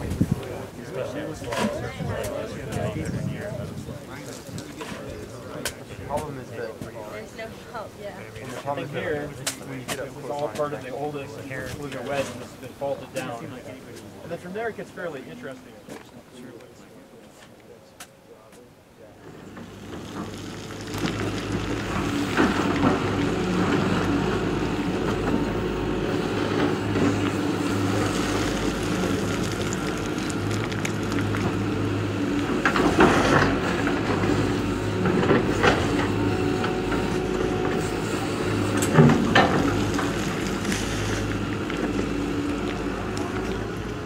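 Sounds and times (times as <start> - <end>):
excavator diesel engine running: 19.2 - 44.0.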